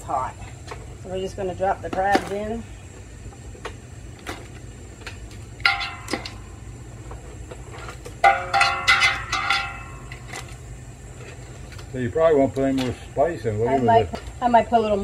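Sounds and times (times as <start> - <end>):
crabs clanging in steel pot: 5.6 - 6.5, 8.2 - 10.6.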